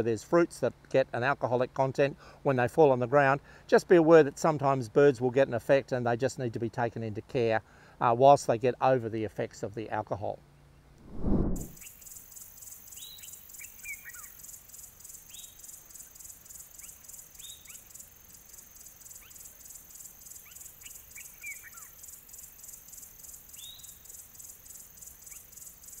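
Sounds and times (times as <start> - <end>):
insects trilling: 11.8 - 26.0.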